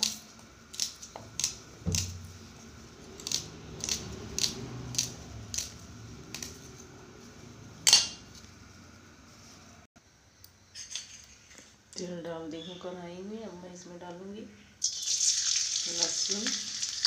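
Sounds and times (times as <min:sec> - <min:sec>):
knife slicing onion: 0:00.0 - 0:06.8.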